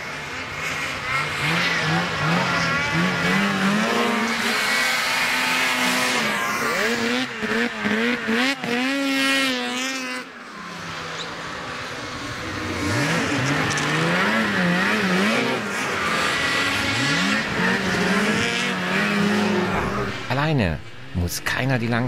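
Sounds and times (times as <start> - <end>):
snowmobile engines revving: 0.0 - 22.0.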